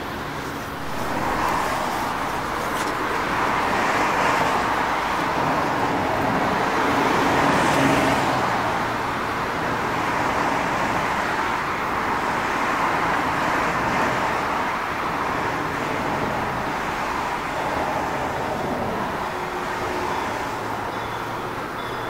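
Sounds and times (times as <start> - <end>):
distant electric train approaching: 0.0 - 11.0
road traffic roar: 0.0 - 22.0.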